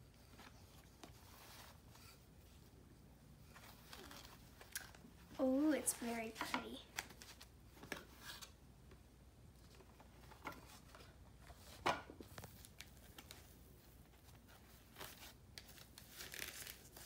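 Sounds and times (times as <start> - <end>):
tissue paper rustling: 0.0 - 2.8, 9.6 - 17.0.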